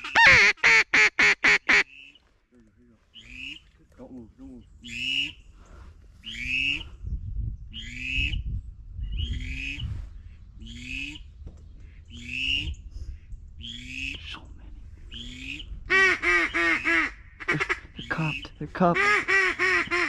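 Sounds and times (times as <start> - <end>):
ducks quacking: 0.0 - 1.9, 3.1 - 3.8, 15.2 - 20.0.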